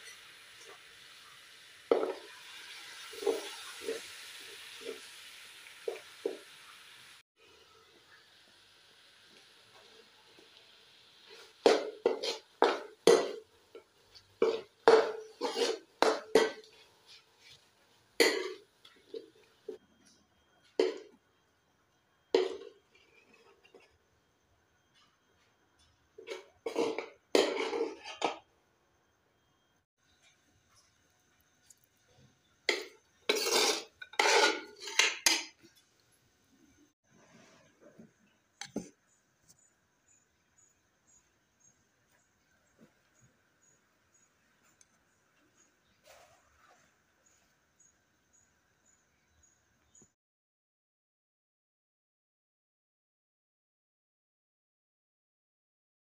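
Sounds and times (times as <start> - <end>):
metal ladle scraping pan: 11.3 - 17.6, 18.2 - 19.8, 22.4 - 23.9, 26.2 - 28.4, 32.7 - 35.7
metal spoon knocking on pan: 11.6 - 13.4, 14.4 - 16.7.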